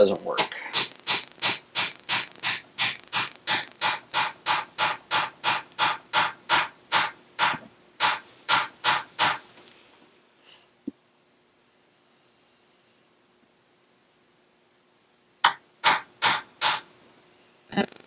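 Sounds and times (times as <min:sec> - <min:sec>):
small hammer tapping metal punch: 0:00.8 - 0:09.4.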